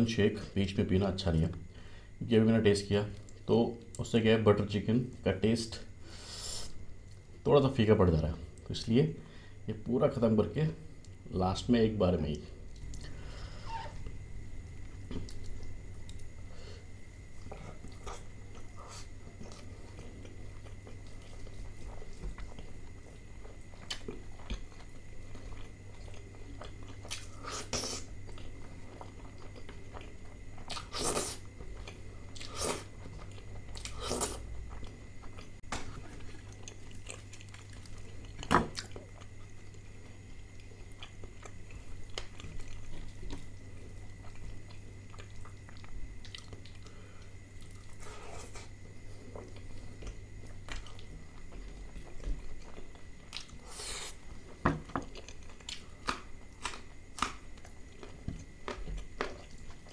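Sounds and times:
chewing and biting: 17.4s - 53.6s.

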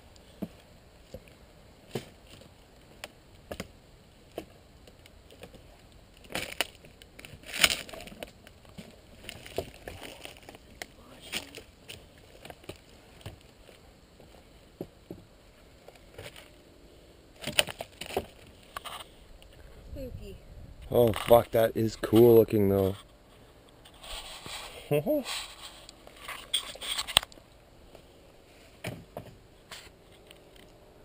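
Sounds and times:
footsteps on broken wood: 6.2s - 15.2s.

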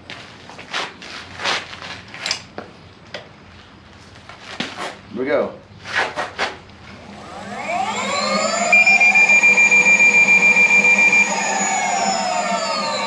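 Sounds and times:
motor spinning wheel whine: 7.0s - 13.0s
high pulsing tone: 7.6s - 13.0s.

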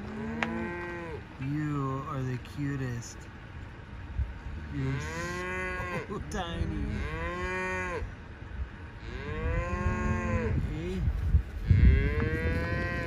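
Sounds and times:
cattle mooing: 0.0s - 1.3s, 4.5s - 8.1s, 9.0s - 11.0s, 11.6s - 13.0s.

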